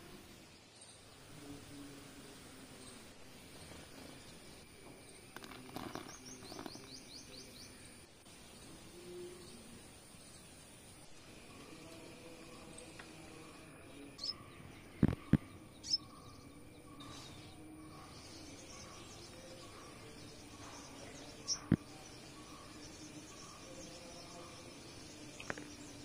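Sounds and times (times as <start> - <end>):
steady low hiss: 0.0 - 26.0
high bird chirps: 14.2 - 24.7.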